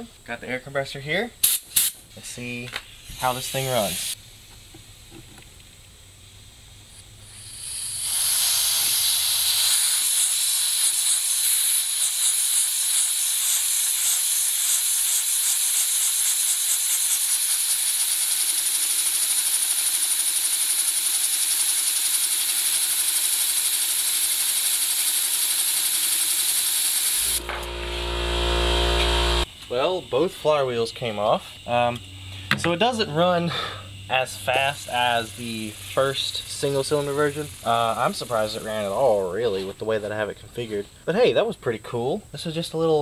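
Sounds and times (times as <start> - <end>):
compressed air hissing: 1.4 - 5.2, 6.8 - 29.5, 33.4 - 39.8
low steady hum: 27.2 - 42.6.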